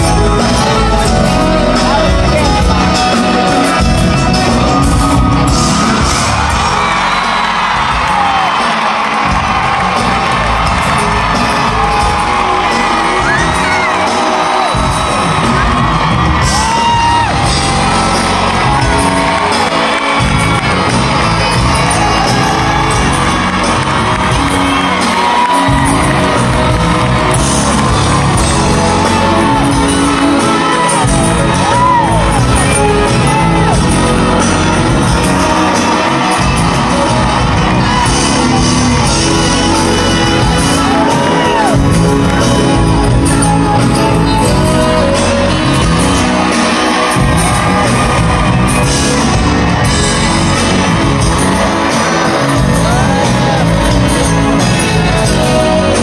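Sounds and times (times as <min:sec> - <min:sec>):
fans shouting and whooping: 0:00.0 - 0:56.0
live band with singer: 0:00.0 - 0:56.0.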